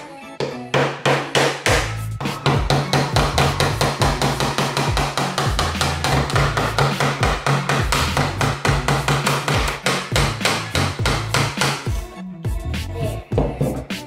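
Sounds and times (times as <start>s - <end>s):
hammer nailing wooden box: 0.7s - 11.9s
background music with bass line: 1.6s - 14.0s.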